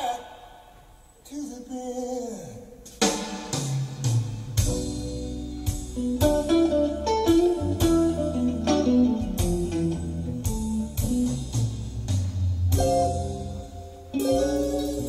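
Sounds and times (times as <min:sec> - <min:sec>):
steady bass line: 0:04.4 - 0:15.0
plucked guitar: 0:04.6 - 0:12.0, 0:12.7 - 0:15.0.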